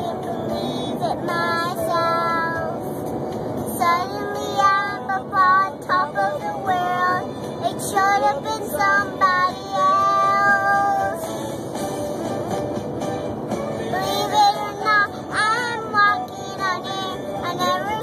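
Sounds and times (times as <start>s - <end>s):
road noise: 0.0s - 18.0s
girl singing: 3.8s - 11.2s, 14.0s - 18.0s.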